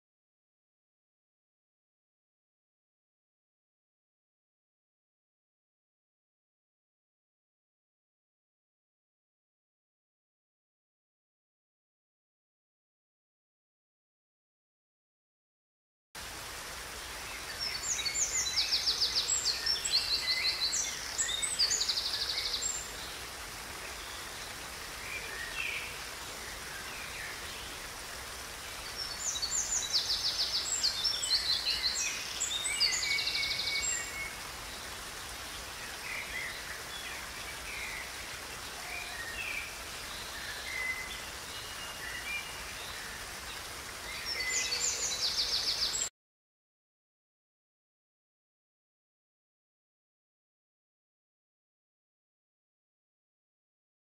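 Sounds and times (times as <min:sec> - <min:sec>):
waterfall trickling over rocks: 0:16.2 - 0:46.1.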